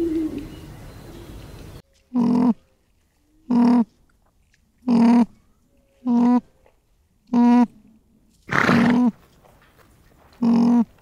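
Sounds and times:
animal crying: 10.4 - 10.9.

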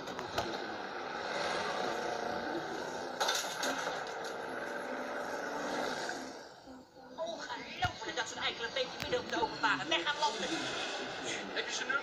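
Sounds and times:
car engine running: 0.0 - 6.6
tyres on the road: 0.0 - 12.0
loud clatter: 3.1 - 4.4.

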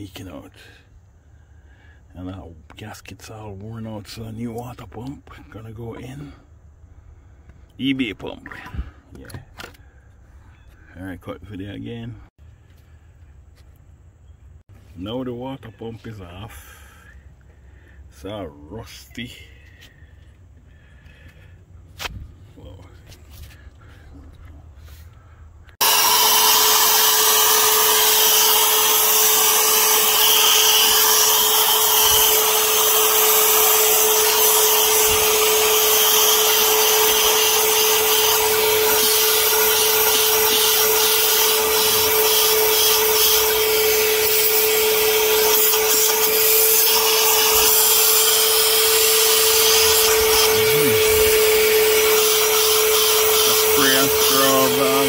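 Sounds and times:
vacuum cleaner humming with hiss: 32.0 - 55.0.

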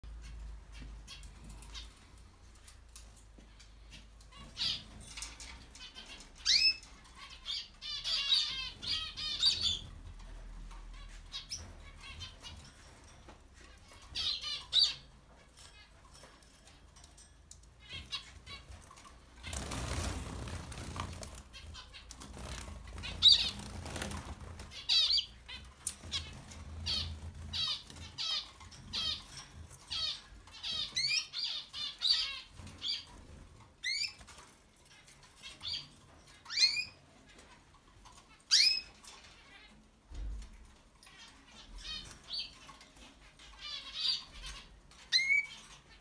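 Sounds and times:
high bird chirps: 5.8 - 9.9, 13.8 - 15.1
wing fluttering: 18.7 - 29.5.

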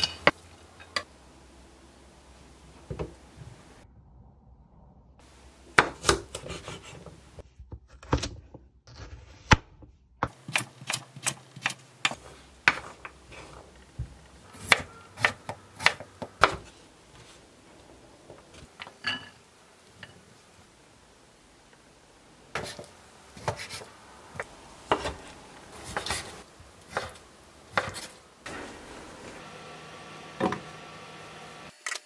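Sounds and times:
knife chopping on wooden board: 14.0 - 16.7, 22.6 - 25.2, 25.8 - 28.2.

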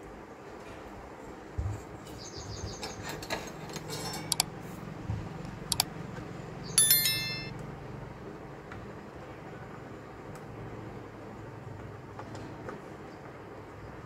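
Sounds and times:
sharp metallic clink: 6.7 - 7.5.

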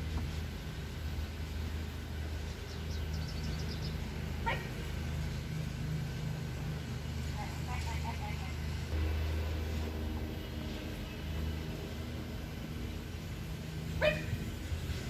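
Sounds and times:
steady low hum: 0.0 - 15.0
dog yipping: 4.4 - 4.7, 14.0 - 14.3.

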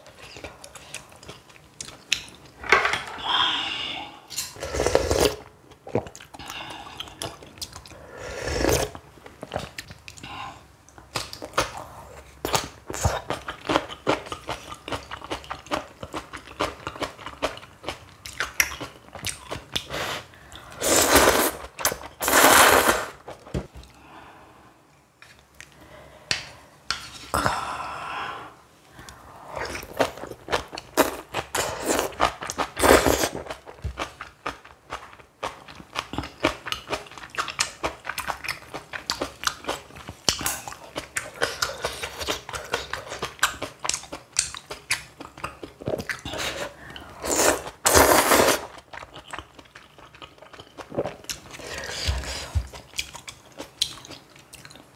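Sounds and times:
person chewing and crunching: 0.2 - 2.5, 12.5 - 20.0, 29.6 - 54.9.

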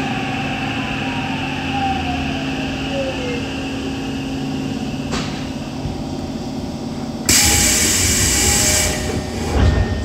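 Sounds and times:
subway train hum and rumble: 0.0 - 10.0
loud hiss: 7.3 - 9.6.

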